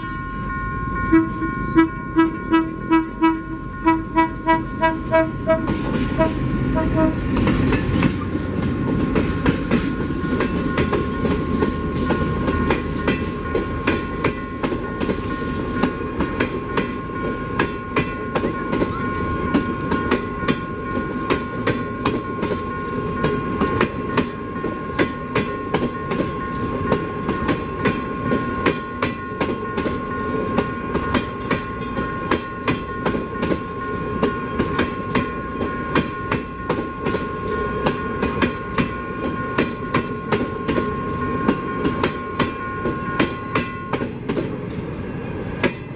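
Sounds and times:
steady high tone: 0.0s - 7.4s
train rumble: 0.0s - 45.9s
train wheels clicking over rail joints: 4.8s - 45.9s.

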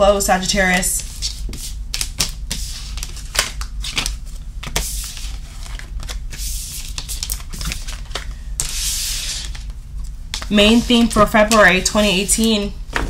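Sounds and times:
cards sliding and rubbing: 1.0s - 9.7s
cards being shuffled: 1.0s - 13.0s.

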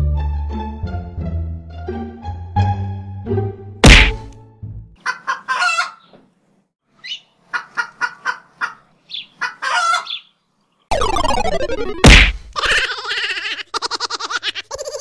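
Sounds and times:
sharp hit: 3.8s - 4.3s, 10.9s - 12.6s
hen clucking and squawking: 5.0s - 6.2s, 7.0s - 10.3s, 12.6s - 15.0s.

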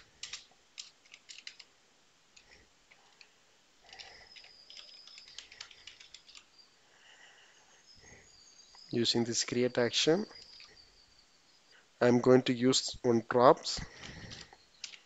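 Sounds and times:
faint keyboard typing: 0.0s - 6.7s, 10.2s - 10.9s, 13.8s - 15.0s.

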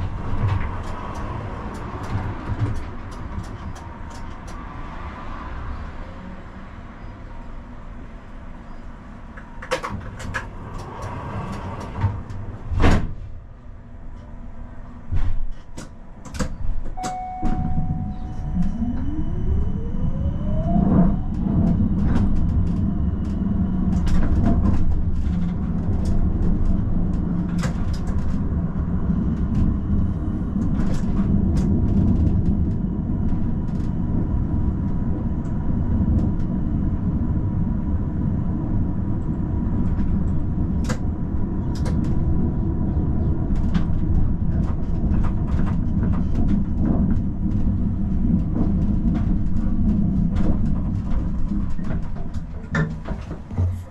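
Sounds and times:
tram rumbling: 0.0s - 53.9s.

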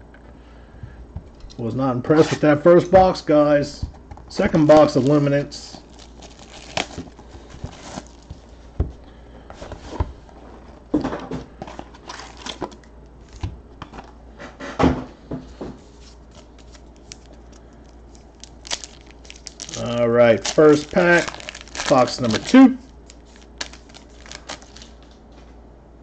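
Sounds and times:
plastic wrapper crinkling: 4.7s - 8.5s, 11.9s - 13.4s, 16.1s - 25.2s.

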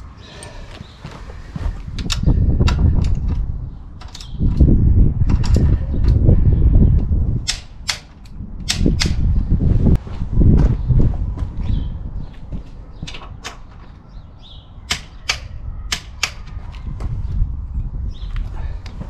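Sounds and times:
loud low rumbling: 0.0s - 13.0s.

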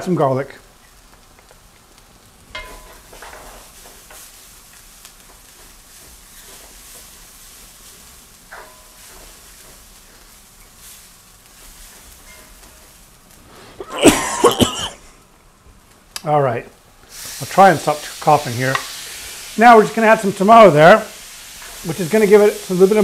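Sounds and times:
vegetables frying in a wok: 0.0s - 14.1s, 15.0s - 23.0s
spatula scraping a wok: 5.3s - 13.8s.

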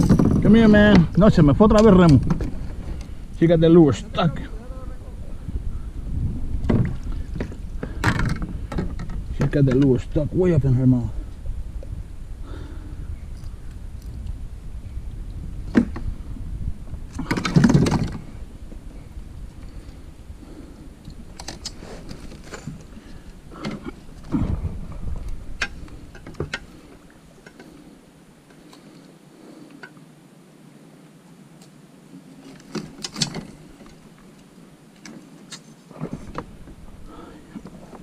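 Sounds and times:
gear clicks and knocks: 0.0s - 3.1s, 17.1s - 18.2s, 32.4s - 34.0s
low rumble: 0.0s - 21.3s.

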